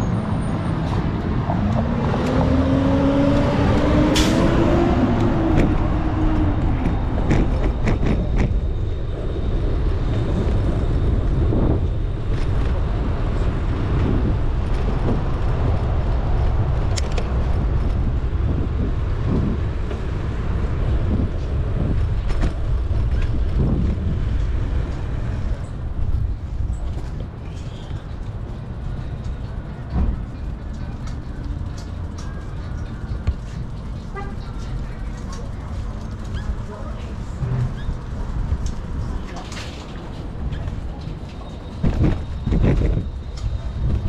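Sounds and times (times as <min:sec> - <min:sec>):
road and vehicle noise: 0:00.0 - 0:44.0
wind rumbling on microphone: 0:00.1 - 0:44.0
bicycle clicks and rattles: 0:26.7 - 0:36.6.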